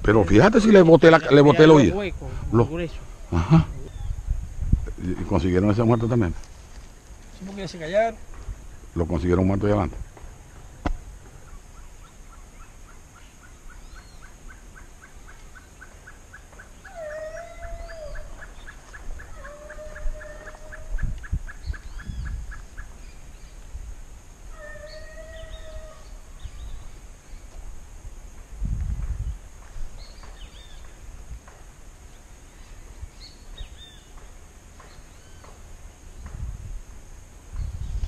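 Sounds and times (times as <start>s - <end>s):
dog howling in distance: 16.8s - 18.6s, 19.2s - 21.1s, 24.5s - 26.2s.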